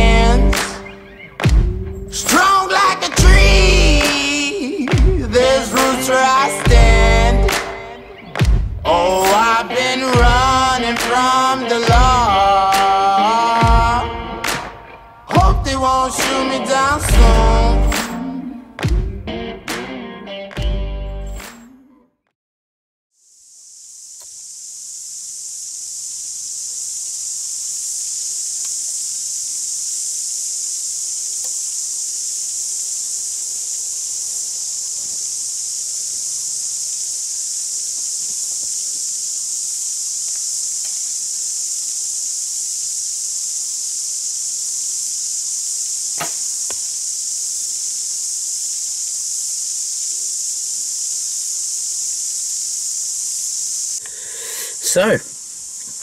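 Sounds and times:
bow string snap: 0.0 - 3.4, 4.0 - 6.8, 7.4 - 8.6, 14.1 - 15.4, 16.2 - 19.0, 19.6 - 21.9, 46.2 - 46.8
insect chorus: 0.0 - 22.0, 23.1 - 56.0.

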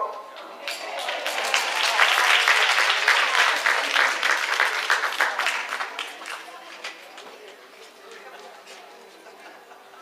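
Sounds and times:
congregation applauding: 0.6 - 7.2.

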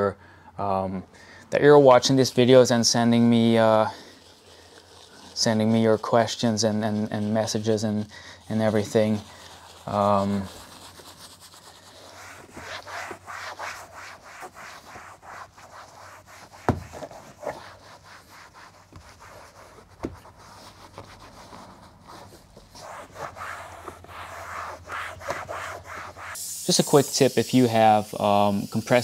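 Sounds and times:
towel wiping door panel: 8.5 - 26.4.

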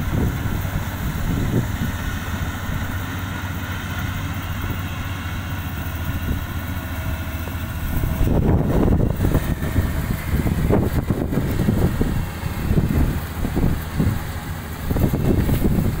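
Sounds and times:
combine harvester diesel engine: 0.0 - 16.0
wind buffeting microphone: 0.0 - 16.0.

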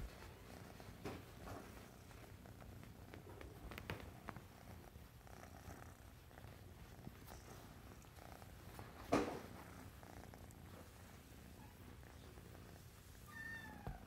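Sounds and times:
kitten purring: 0.0 - 14.0
hand clicks on fur: 2.9 - 4.5.

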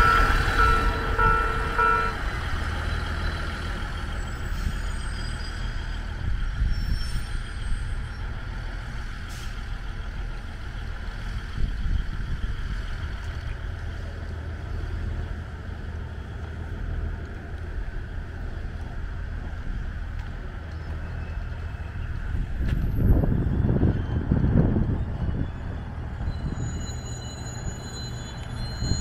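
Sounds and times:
faint high squeals: 0.0 - 8.3, 23.0 - 29.0
diesel railcar low rumble: 0.0 - 29.0.

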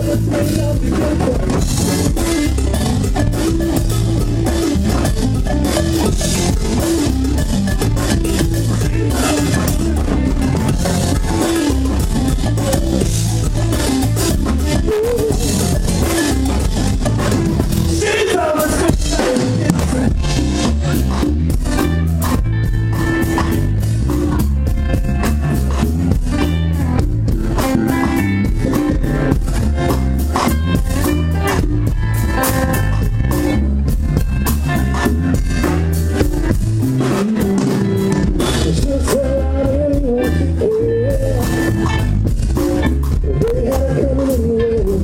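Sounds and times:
live band playing: 0.0 - 45.0.

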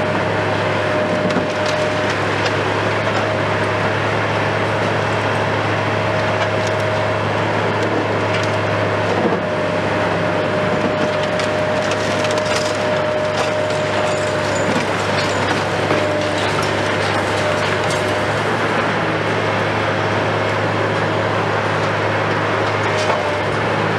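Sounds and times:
excavator engine running: 0.0 - 23.9
concrete crunching and breaking: 10.7 - 18.8
falling debris: 11.2 - 18.4.

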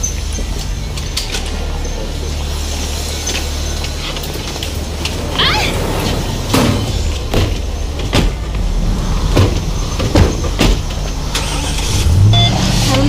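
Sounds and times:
low vehicle rumble: 0.0 - 13.0
sharp knocks: 6.5 - 11.1.

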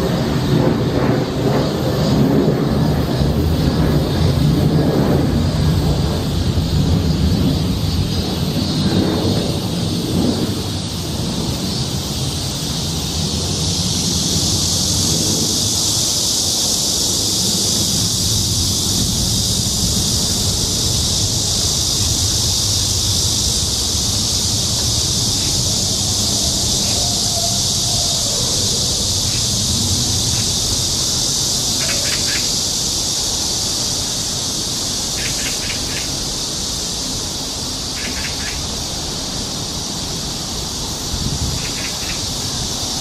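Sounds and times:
cicadas buzzing: 0.0 - 43.0
wind rumbling on microphone: 0.0 - 43.0
bird chirping: 38.0 - 38.6.

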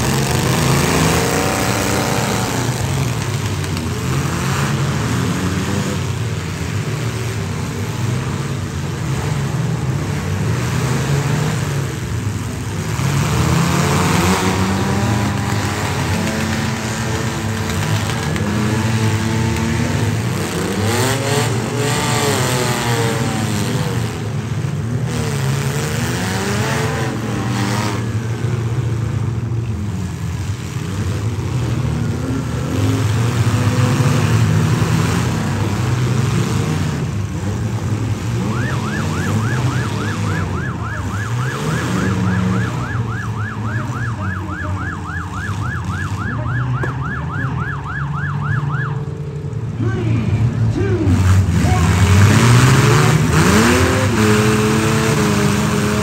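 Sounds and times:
truck engines revving: 0.0 - 56.0
vehicles crashing: 0.0 - 56.0
siren yelping: 38.3 - 49.1.

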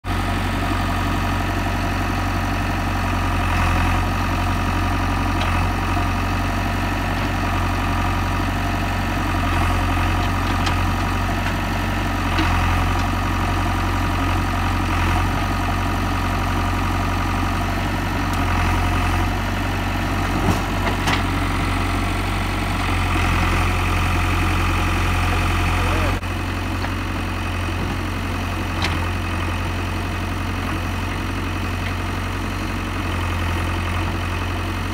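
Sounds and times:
diesel engine under hydraulic load: 0.1 - 34.9.

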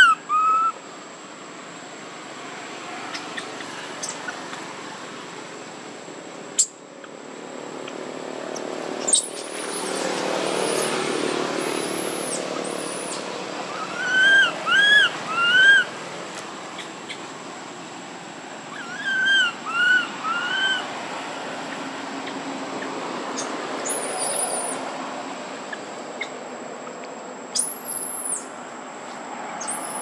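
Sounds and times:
baby monkey crying: 0.0 - 0.8, 11.6 - 16.0, 18.7 - 20.9.

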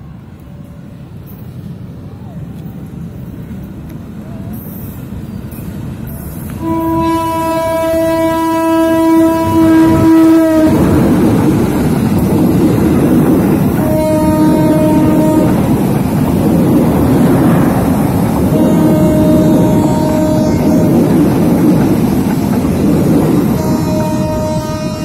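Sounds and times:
train wheel and rail noise: 0.0 - 25.0
locomotive horn blast: 6.6 - 11.2, 13.6 - 15.8, 18.4 - 22.0, 23.3 - 25.0.

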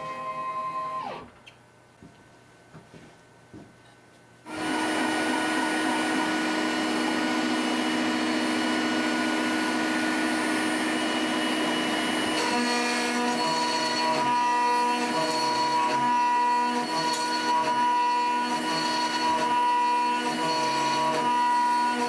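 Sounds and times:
motors whining: 0.0 - 1.4
router spindle whining: 0.0 - 1.4, 4.5 - 22.0.

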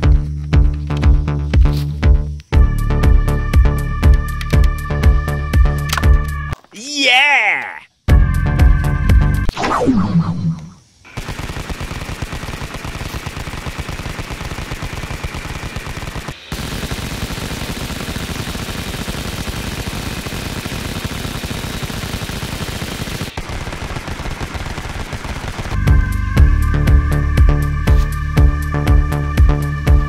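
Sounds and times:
toy gun machine-gun sound effect: 11.1 - 25.8.

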